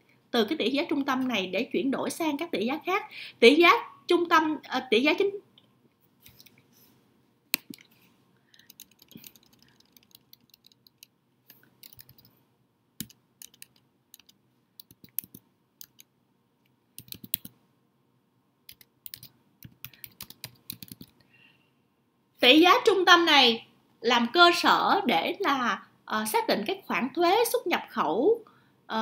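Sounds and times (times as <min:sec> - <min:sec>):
keyboard typing: 0:06.2 - 0:06.6, 0:07.6 - 0:12.4, 0:13.0 - 0:16.1, 0:17.0 - 0:17.6, 0:18.7 - 0:21.2.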